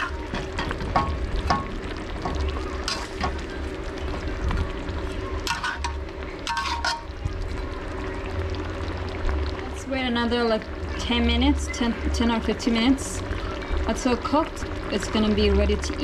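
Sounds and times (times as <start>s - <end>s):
metal spoon scraping a wok: 5.5s - 7.1s.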